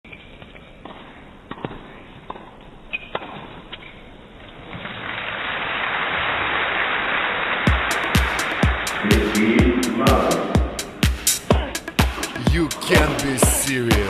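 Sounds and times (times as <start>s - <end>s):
music: 7.7s - 14.0s.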